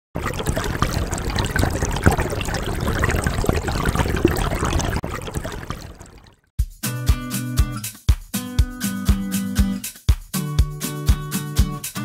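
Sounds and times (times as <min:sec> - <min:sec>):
running water trickling: 0:00.2 - 0:06.4.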